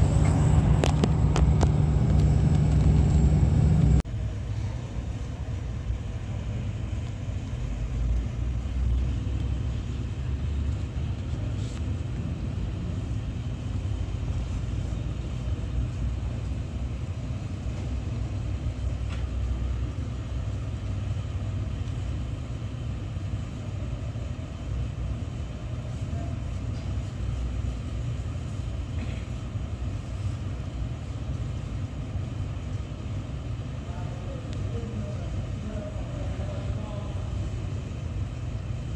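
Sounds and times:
low rumble: 0.0s - 18.9s.

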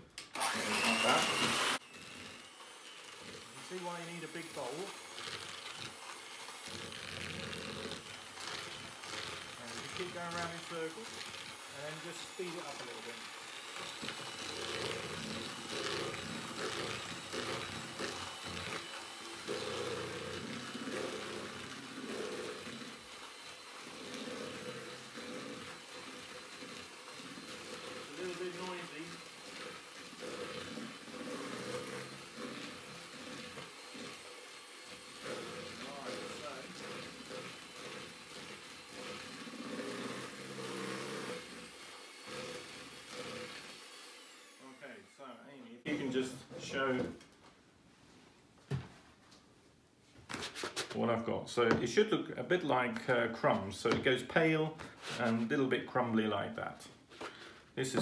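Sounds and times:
electric hand mixer motor whine: 0.0s - 46.0s, 57.1s - 58.0s
beaters churning in plastic bowl: 0.4s - 44.8s.

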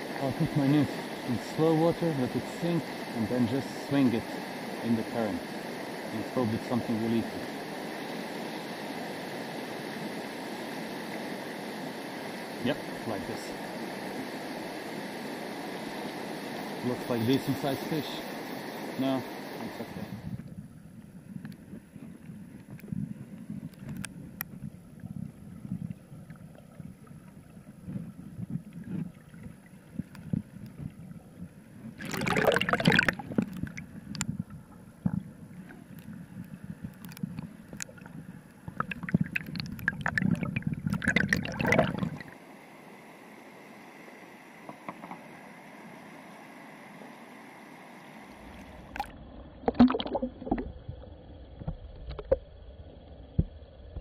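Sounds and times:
steady hiss: 0.0s - 26.0s, 26.8s - 48.9s
muffled river water rushing: 0.0s - 52.6s
water splashing: 31.8s - 42.4s, 48.4s - 50.8s.

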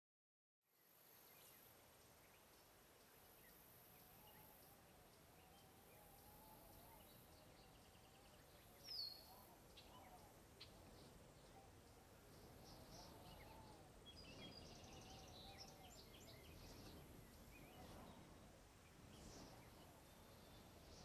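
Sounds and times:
bird chirps: 3.3s - 11.7s.

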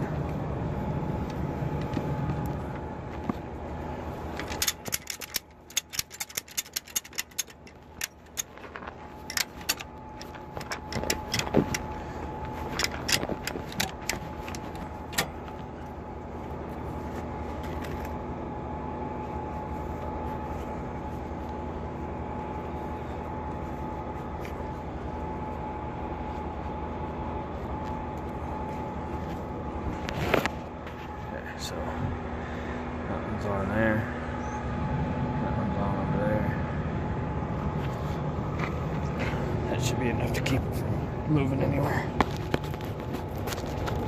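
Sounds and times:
engine hum: 0.0s - 44.0s
metallic clicks and clinks: 4.4s - 8.5s.

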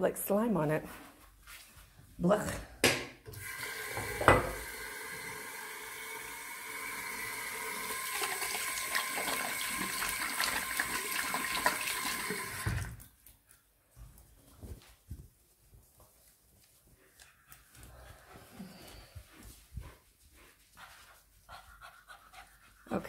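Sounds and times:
sink tap running: 3.3s - 13.0s
splashing hand rinsing: 7.0s - 13.0s.

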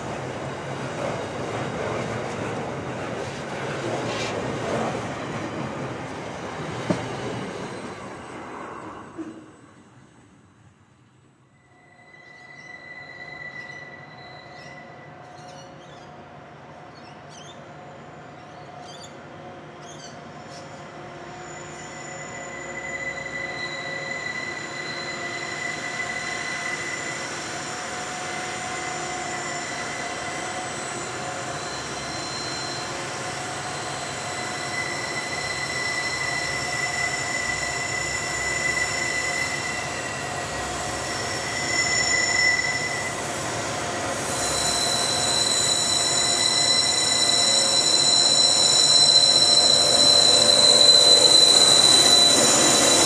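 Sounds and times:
freight train rumbling: 0.0s - 11.2s, 12.2s - 53.0s
wheel flanges squealing: 21.3s - 43.5s, 44.2s - 53.0s.

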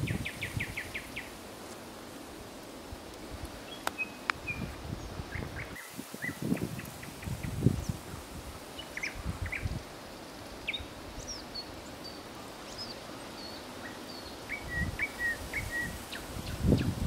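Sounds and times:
wind rumbling on microphone: 0.0s - 1.3s, 2.9s - 11.6s, 14.5s - 17.0s
nightingale singing: 0.0s - 1.4s, 3.6s - 8.0s, 8.8s - 9.8s, 10.6s - 17.0s.

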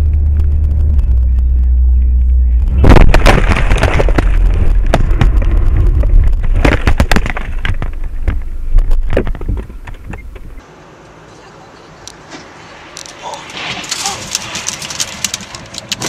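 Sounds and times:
heavy low rumble: 0.0s - 10.6s.

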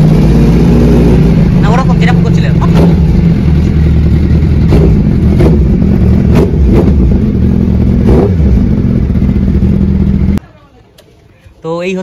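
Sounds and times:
motorcycle engine idling: 0.0s - 10.6s.

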